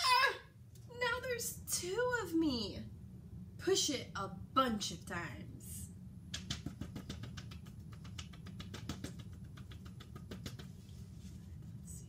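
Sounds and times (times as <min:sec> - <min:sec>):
fingertip tapping on paper: 0:06.4 - 0:10.8.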